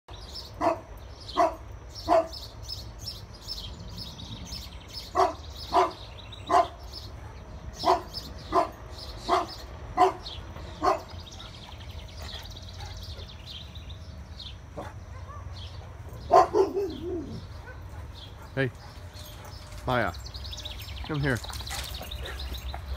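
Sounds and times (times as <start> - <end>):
birds chirping: 0.1 - 22.9
dog barking deeply: 0.6 - 2.4, 5.1 - 11.6, 14.8 - 19.0.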